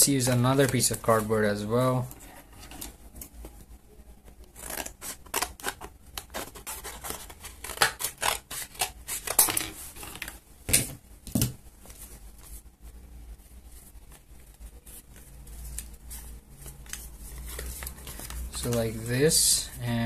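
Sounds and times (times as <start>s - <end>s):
card rustling: 13.8s - 19.8s.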